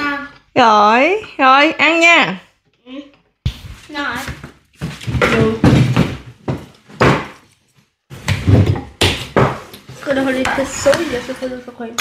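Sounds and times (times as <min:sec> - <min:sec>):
people talking: 0:05.2 - 0:05.9, 0:09.9 - 0:12.0.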